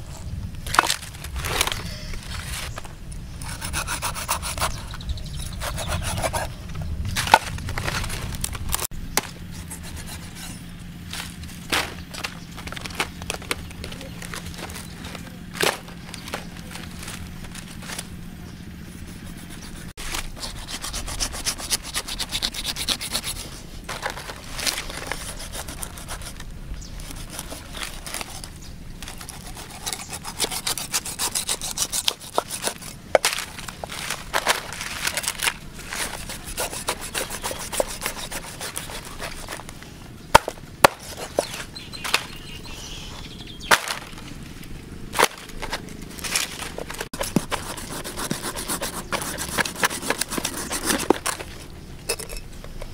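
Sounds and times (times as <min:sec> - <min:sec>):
dry palm fronds crackling: 0:00.0 - 0:03.0, 0:10.8 - 0:18.4, 0:23.6 - 0:30.0, 0:32.6 - 0:36.5, 0:43.6 - 0:47.2
knife rasping through fish skin: 0:19.2 - 0:23.5, 0:29.1 - 0:32.9, 0:35.9 - 0:39.6.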